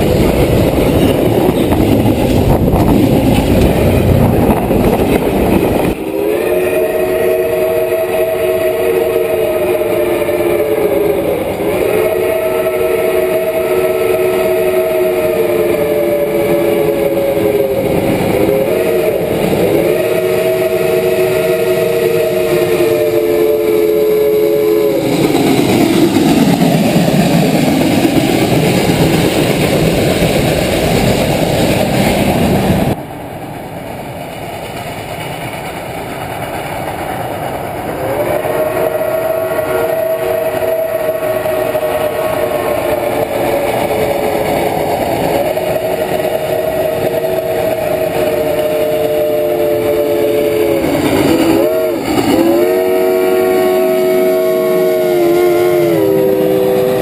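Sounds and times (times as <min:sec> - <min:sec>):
steam locomotive passing: 0:00.0 - 0:57.0
steam whistle chord: 0:05.9 - 0:30.4, 0:37.9 - 0:57.0.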